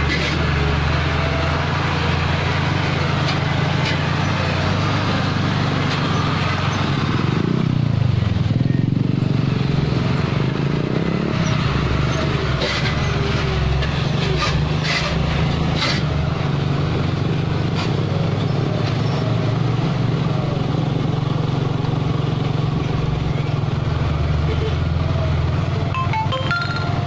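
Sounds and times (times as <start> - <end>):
truck diesel engine running: 0.0 - 27.0.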